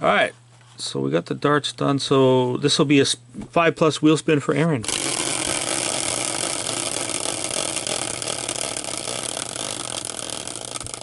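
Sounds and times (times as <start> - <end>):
caster wheel whirring: 4.8 - 11.0.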